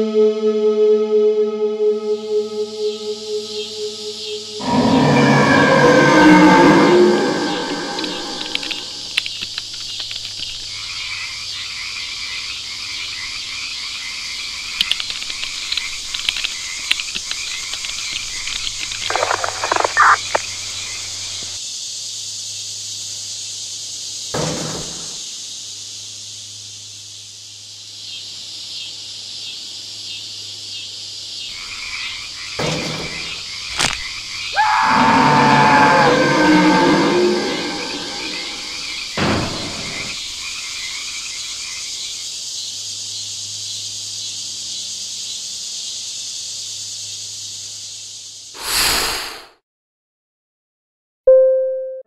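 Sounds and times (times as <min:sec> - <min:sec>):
insects chirping: 0:01.8 - 0:49.4
frogs croaking: 0:02.1 - 0:48.5
short sharp sound: 0:48.6 - 0:49.6.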